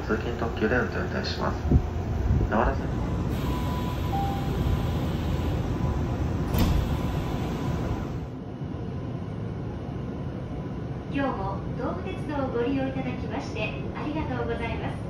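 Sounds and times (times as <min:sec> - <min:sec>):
train car low rumble: 0:00.0 - 0:15.0
sliding doors closing with thud: 0:03.3 - 0:08.3.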